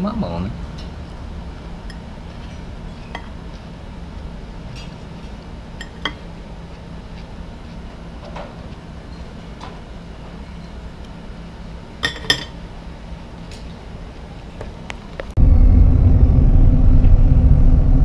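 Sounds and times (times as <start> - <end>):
steady low hum: 0.0 - 18.0
cutlery clinking on a plate: 12.0 - 12.6.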